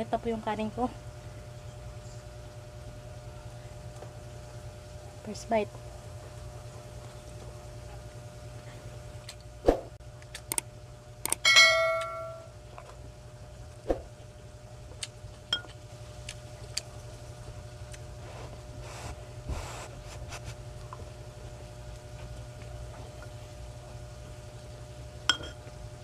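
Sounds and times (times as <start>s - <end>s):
ringing clink: 11.4s - 12.5s.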